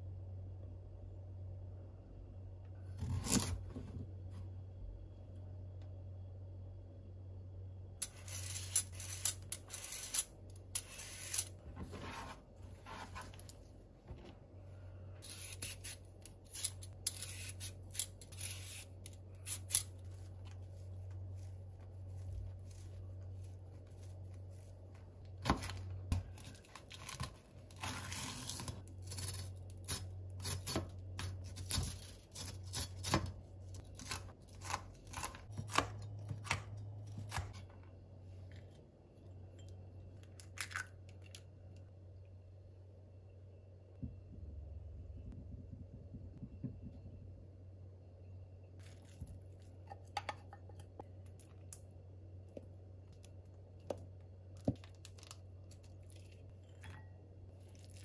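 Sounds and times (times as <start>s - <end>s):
low hum: 0.0s - 26.8s, 35.6s - 54.6s.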